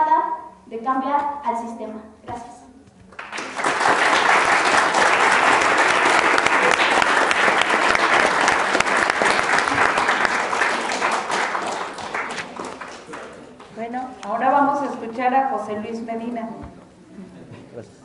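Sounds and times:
audience applauding: 3.1s - 13.6s.

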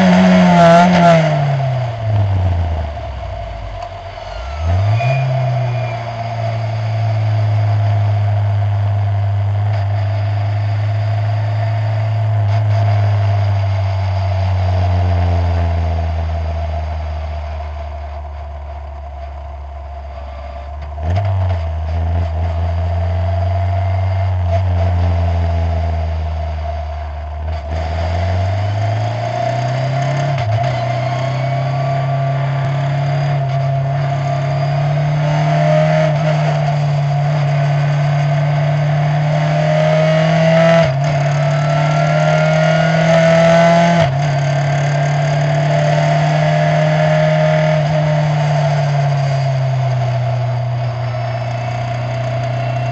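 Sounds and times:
race car engine: 0.0s - 52.9s
steady high whine: 0.0s - 52.9s.

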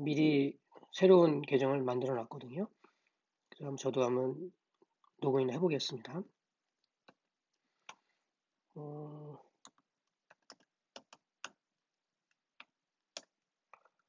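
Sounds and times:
person humming: 8.8s - 9.4s.

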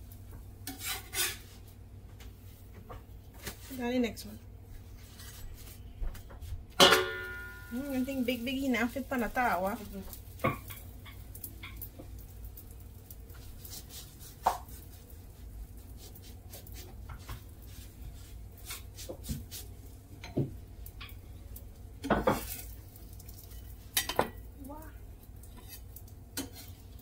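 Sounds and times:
kitchen utensils knocking and clinking: 6.8s - 8.2s.

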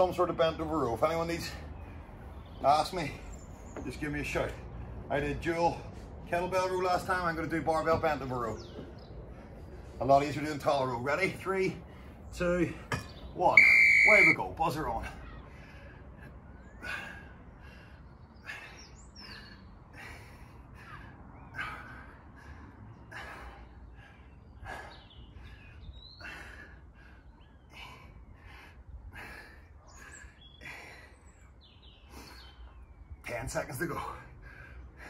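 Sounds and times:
bird chirps: 11.9s - 14.4s, 29.8s - 33.5s
man breathing hard: 15.0s - 33.0s, 34.1s - 35.0s.

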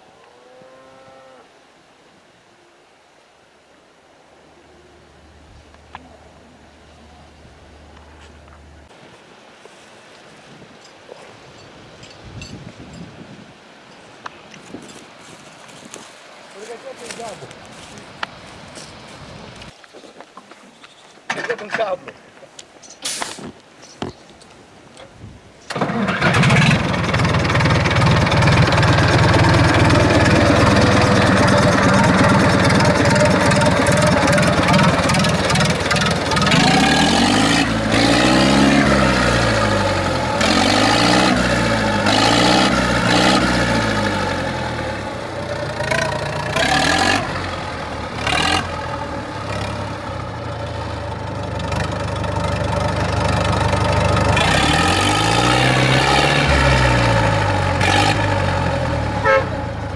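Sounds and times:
diesel tractor engine revving: 25.7s - 59.9s.

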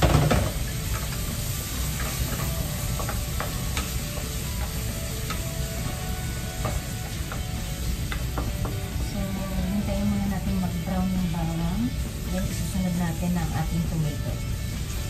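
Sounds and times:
spatula tapping and scraping pan: 0.0s - 9.1s
garlic sizzling in oil: 0.0s - 15.0s.

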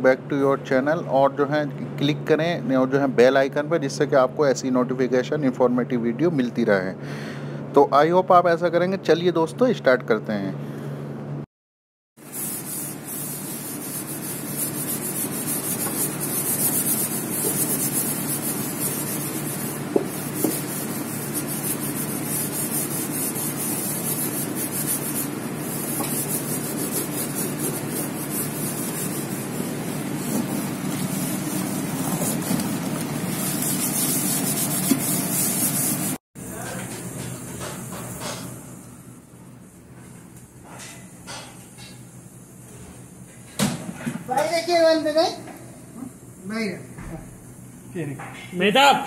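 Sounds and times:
scrubbing a steel basin: 12.2s - 36.2s.

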